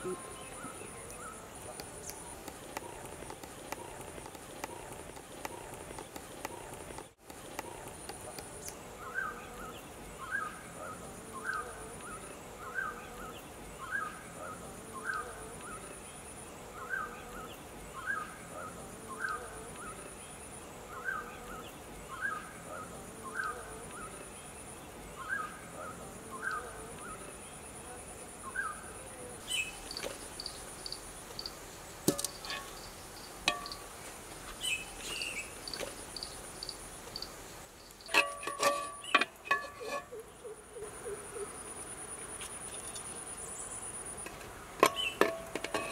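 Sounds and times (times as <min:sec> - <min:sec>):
sharp clicks and knocks: 0:01.8 - 0:08.5
insect trilling: 0:28.0 - 0:34.0, 0:34.6 - 0:45.9.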